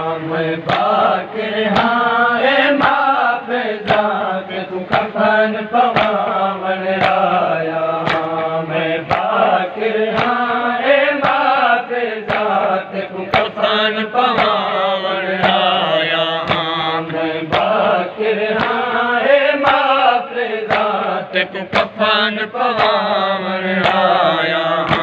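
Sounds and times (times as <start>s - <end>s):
men chanting a lament: 0.0s - 25.0s.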